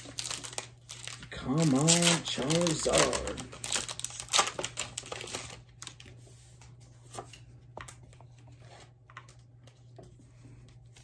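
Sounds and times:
foil wrapper crinkling: 0.0 - 6.2
cards ticking: 0.2 - 5.3.

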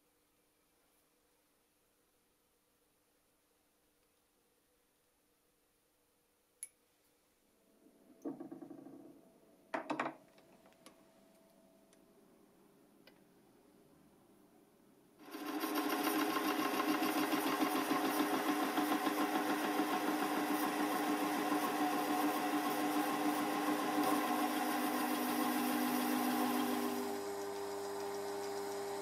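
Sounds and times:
lathe motor and gear whine: 15.4 - 29.0.

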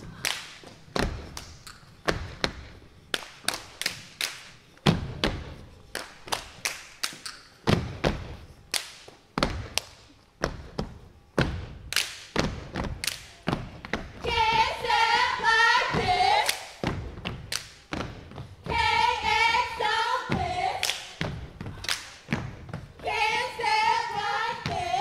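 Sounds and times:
hand claps: 0.2 - 7.6, 8.2 - 10.2, 11.8 - 14.0, 16.4 - 18.2, 20.8 - 22.5.

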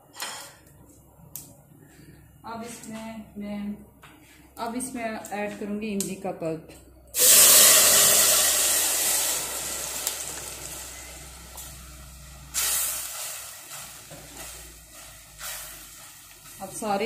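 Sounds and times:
pulp sizzling in hot oil: 7.2 - 17.0
spatula stirring in saucepan: 12.6 - 17.0.

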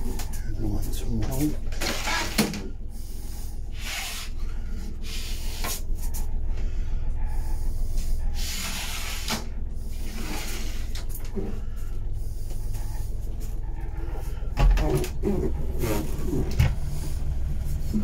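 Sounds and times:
wooden cupboards rubbing and scraping: 0.0 - 2.7, 12.4 - 18.0
steady low hum: 0.0 - 18.0.

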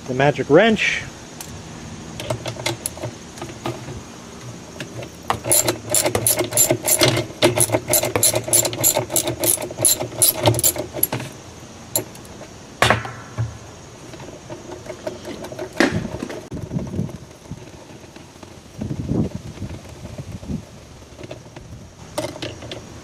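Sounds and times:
ratchet wrench clicking: 5.3 - 11.2, 12.0 - 12.4.

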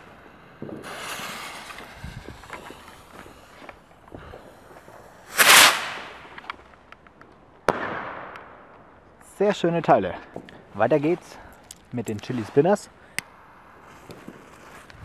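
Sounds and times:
rocket fuse hissing: 0.0 - 6.5
rocket launching whoosh: 0.7 - 3.5, 5.2 - 6.4.

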